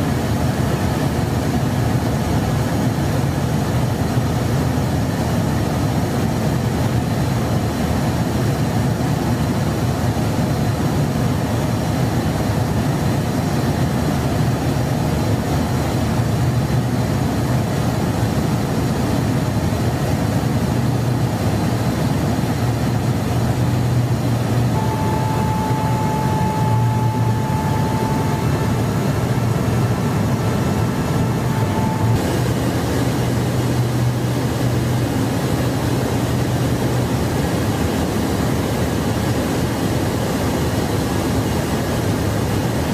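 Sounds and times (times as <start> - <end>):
airflow and engine drone: 0.0 - 42.9
low hum: 20.9 - 38.2
thin steady tone: 24.8 - 35.0.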